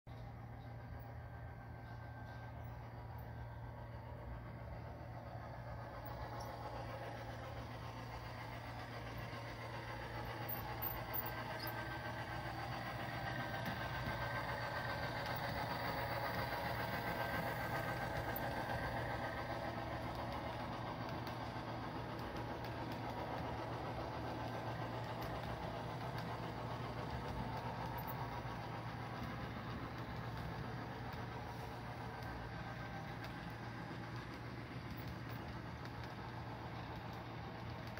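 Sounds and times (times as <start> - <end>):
low hum: 0.1 - 37.9
model train running on track: 0.1 - 37.9.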